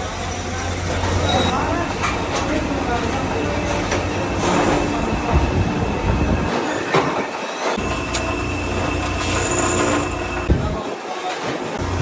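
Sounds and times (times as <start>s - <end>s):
drill press motor hum: 7.8s - 10.6s.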